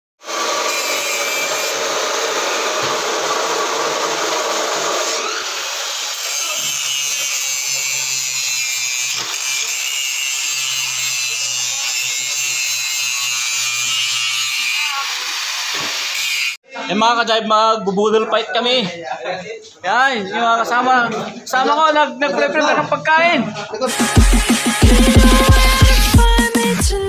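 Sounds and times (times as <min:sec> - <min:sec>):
angle grinder grinding metal: 0:00.2 - 0:16.6.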